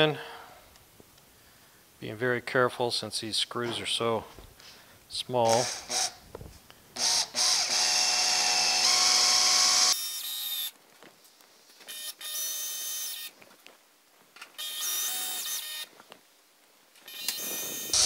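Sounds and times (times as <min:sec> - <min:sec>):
cordless drill driving screws: 0:05.5 - 0:06.2, 0:07.0 - 0:10.7, 0:11.9 - 0:13.3, 0:14.6 - 0:15.9, 0:17.0 - 0:18.0.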